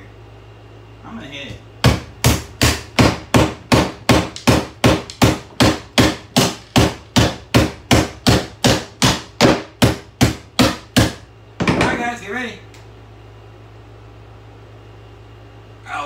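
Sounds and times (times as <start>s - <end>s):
hammer striking a hair dryer: 1.8s - 12.0s.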